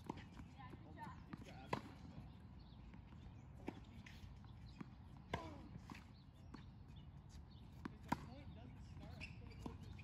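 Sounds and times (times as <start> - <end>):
tennis balls struck by rackets: 0.0 - 6.9, 7.7 - 8.6
tennis balls bouncing on hard court: 0.0 - 7.0, 7.6 - 10.0.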